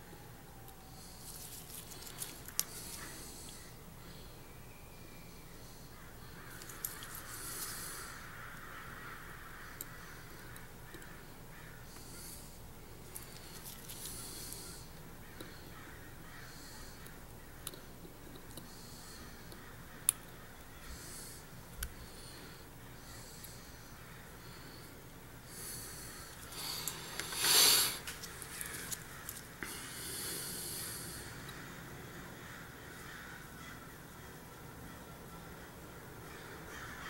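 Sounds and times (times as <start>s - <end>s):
soft breaths: 0.0s - 33.1s.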